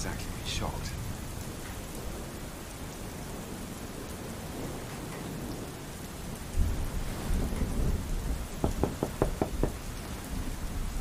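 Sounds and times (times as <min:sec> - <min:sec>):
heavy rain: 0:00.0 - 0:11.0
knocks on a door: 0:08.6 - 0:09.8.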